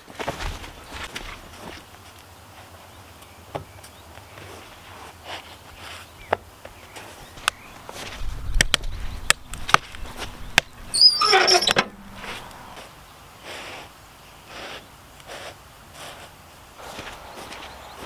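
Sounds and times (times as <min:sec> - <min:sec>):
iron door squealing on hinges: 0:10.9 - 0:12.4.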